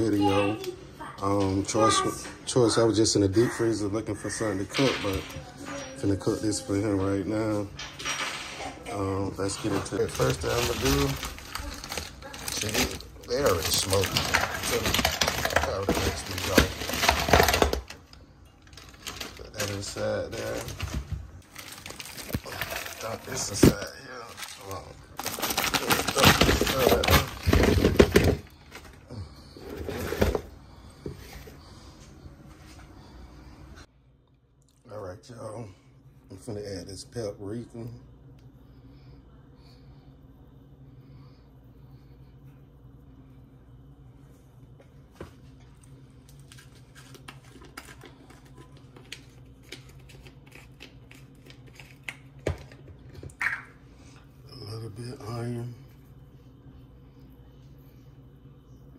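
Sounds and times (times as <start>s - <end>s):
steady low hum: 0.0s - 58.9s
plastic bag crinkling: 9.3s - 29.1s.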